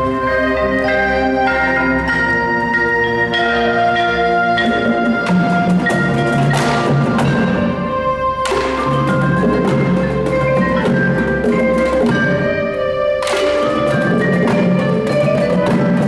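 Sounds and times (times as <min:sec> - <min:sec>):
mallet keyboards ringing chords: 0:00.0 - 0:16.0
drum strokes: 0:03.9 - 0:16.0.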